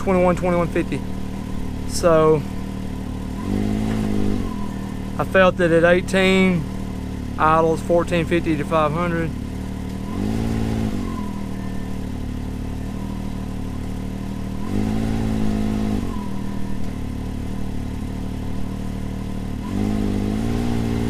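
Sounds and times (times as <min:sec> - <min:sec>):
engine idling and revving: 0:00.0 - 0:21.0.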